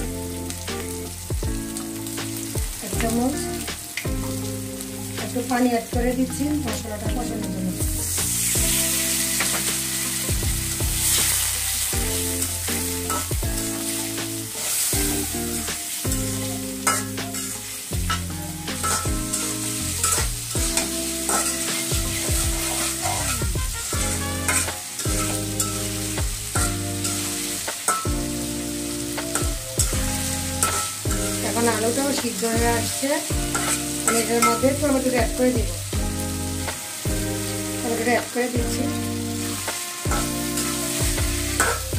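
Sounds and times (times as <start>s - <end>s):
oil sizzling: 0.0s - 41.9s
metal spatula scraping pan: 13.0s - 14.9s, 16.8s - 28.7s, 29.3s - 32.2s, 33.5s - 35.0s, 39.0s - 41.9s.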